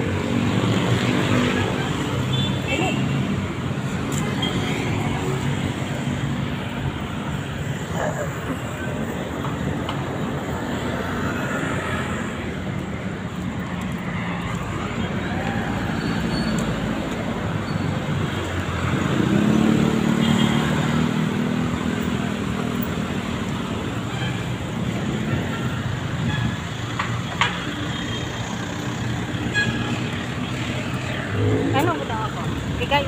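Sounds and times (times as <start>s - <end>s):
car and motorcycle engines: 0.0s - 26.2s, 26.8s - 33.0s
tyres on the road: 0.0s - 33.0s
vehicle passing by: 30.8s - 33.0s.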